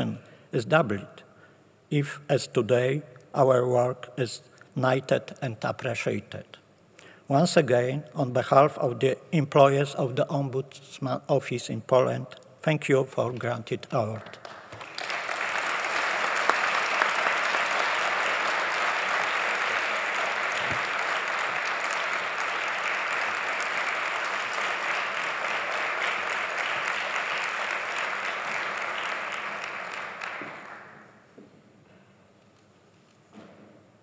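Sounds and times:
audience applauding: 0:14.4 - 0:31.1.

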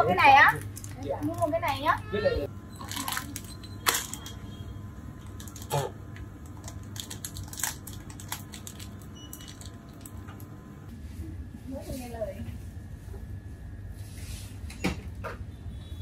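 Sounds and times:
plastic candy bag crinkling: 0:00.5 - 0:01.8, 0:02.8 - 0:04.4, 0:05.2 - 0:10.2.

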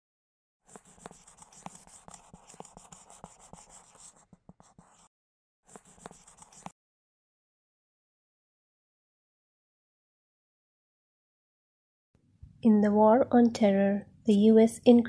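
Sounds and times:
marker scribbling: 0:00.7 - 0:05.1, 0:05.7 - 0:06.8.

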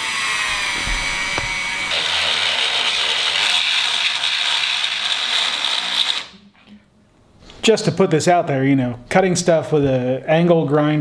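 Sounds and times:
rotary tool whining: 0:00.0 - 0:06.4.

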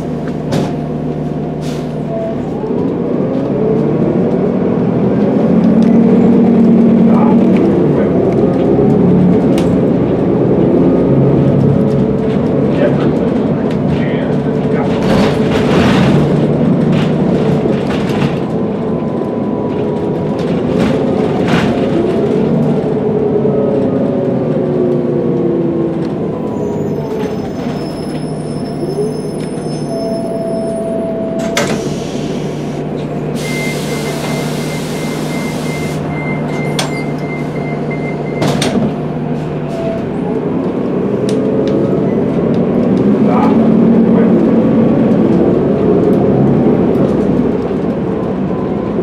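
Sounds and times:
bus engine hum: 0:00.0 - 0:49.0
air brake hiss: 0:31.6 - 0:32.8.

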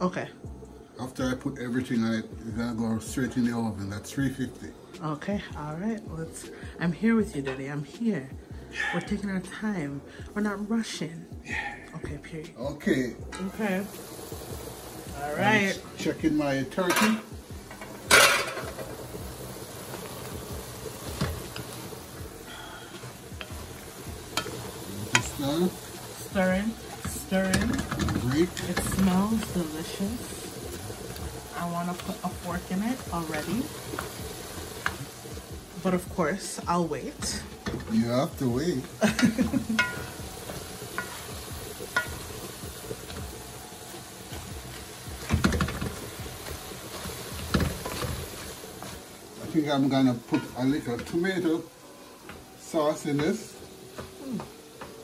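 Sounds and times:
meat sizzling in a metal pot: 0:00.0 - 0:55.0
wooden spoon stirring and scraping: 0:19.8 - 0:35.5, 0:37.2 - 0:51.7
spoon knocking against pot: 0:39.4 - 0:41.3.

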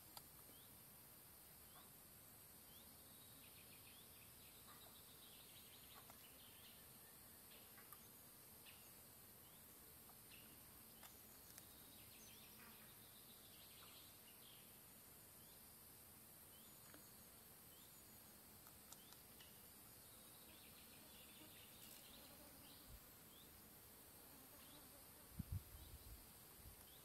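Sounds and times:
steady high hiss: 0:00.0 - 0:27.0.

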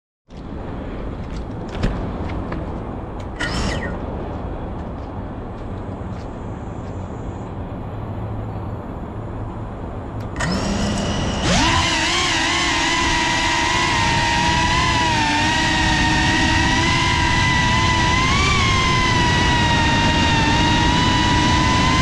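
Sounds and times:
outdoor background noise: 0:00.3 - 0:22.0
drone motors whining: 0:03.2 - 0:04.1, 0:10.2 - 0:22.0.

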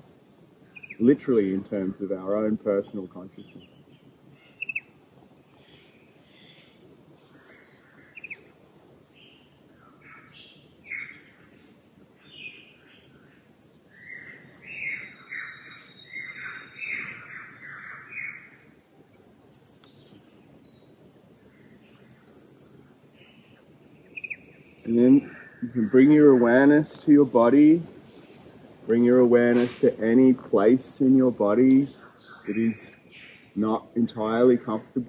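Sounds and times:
birds calling and singing: 0:00.0 - 0:35.0
high-pitched bird chirps: 0:03.5 - 0:07.1, 0:12.3 - 0:18.8, 0:19.5 - 0:20.9, 0:21.6 - 0:29.8.

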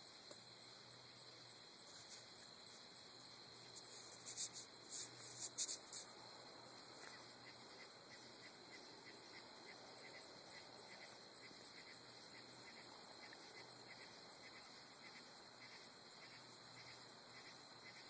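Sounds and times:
faint insect ticking: 0:00.0 - 0:18.0
steady low hiss: 0:00.0 - 0:18.0
raspy insect chirps: 0:01.9 - 0:06.3.

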